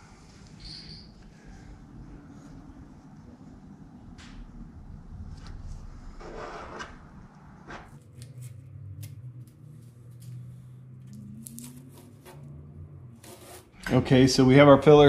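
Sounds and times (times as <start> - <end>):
low hum: 0.0 - 15.0
light clicks and crinkles: 7.9 - 12.6.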